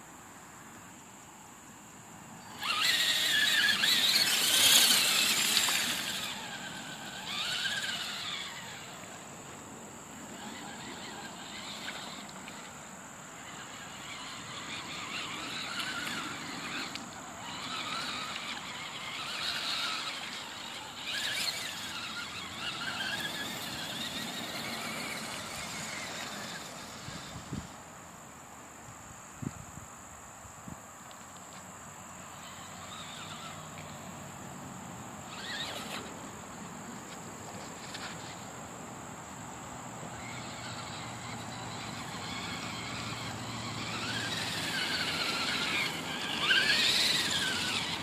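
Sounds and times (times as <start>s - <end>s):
toy car electric motor whining: 2.4s - 28.0s, 31.1s - 48.0s.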